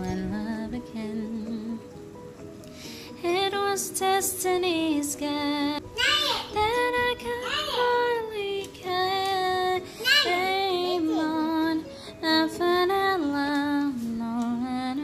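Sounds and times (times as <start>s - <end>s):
slow love ballad: 0.0s - 15.0s.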